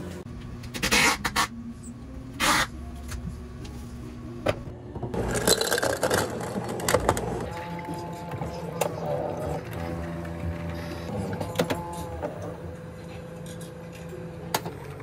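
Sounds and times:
ice clinking and crackling: 5.2s - 8.1s.

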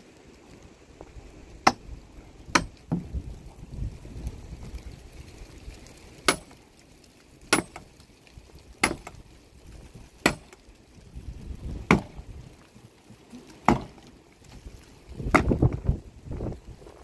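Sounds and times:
axe chopping log: 1.6s - 1.9s, 2.5s - 3.1s, 6.3s - 6.6s, 7.5s - 7.9s, 8.8s - 9.2s, 10.2s - 10.6s, 11.8s - 12.2s, 13.6s - 14.0s, 15.2s - 15.8s.

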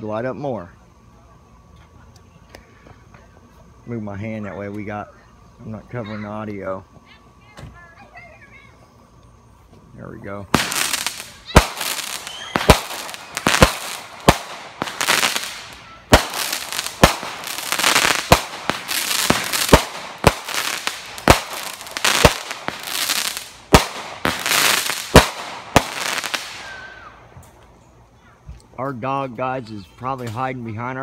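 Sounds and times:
fireworks crackling and fizzing: 1.4s - 27.8s
fireworks bangs: 10.5s - 27.3s.

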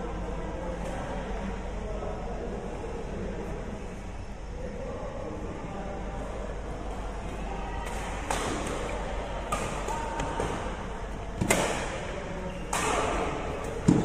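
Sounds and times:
rackets striking shuttlecock: 7.8s - 10.8s, 11.4s - 14.0s.

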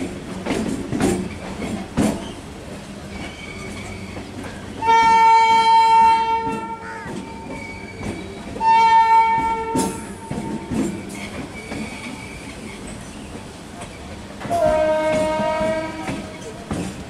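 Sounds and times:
train wheels rumbling on track: 0.0s - 17.0s
train horn blasts: 4.8s - 6.8s, 8.6s - 10.7s, 14.5s - 16.3s.

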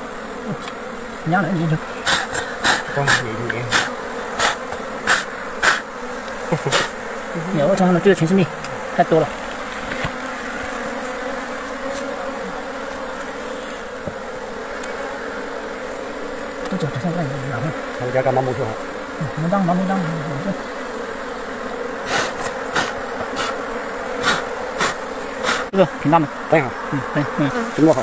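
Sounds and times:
bees buzzing: 0.0s - 28.0s
person speaking: 0.4s - 5.3s, 6.4s - 9.4s, 16.6s - 20.7s, 24.2s - 28.0s.

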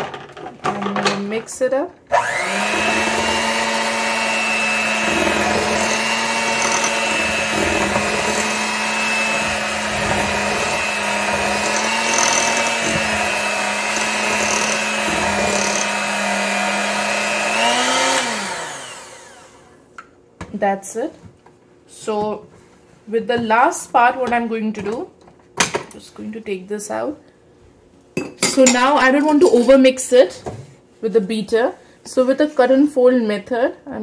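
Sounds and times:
electric hand mixer running: 2.1s - 19.8s.

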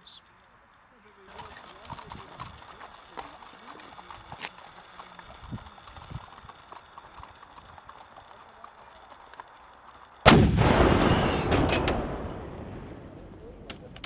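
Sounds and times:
horse hooves clip-clopping: 1.0s - 10.3s
cannon shot: 10.2s - 13.4s.

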